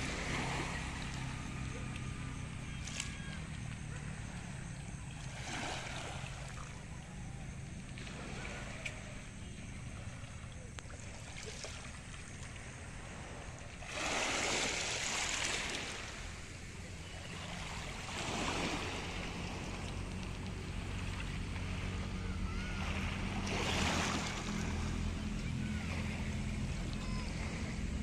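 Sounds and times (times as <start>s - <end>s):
low steady rumble: 0.0s - 14.0s, 14.6s - 28.0s
waves washing onto pebbles: 13.9s - 16.2s.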